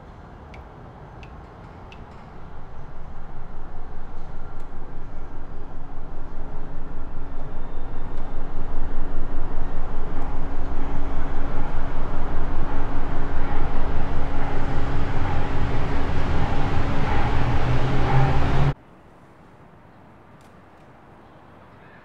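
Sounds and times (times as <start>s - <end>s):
faint outdoor ambience: 0.0s - 22.0s
pulsing mechanical rumble: 2.0s - 18.8s
steady hum: 2.0s - 18.8s.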